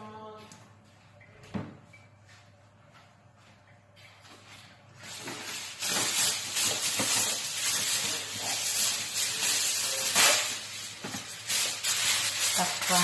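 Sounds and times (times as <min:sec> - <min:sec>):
aluminium foil crinkling: 0:05.0 - 0:13.0.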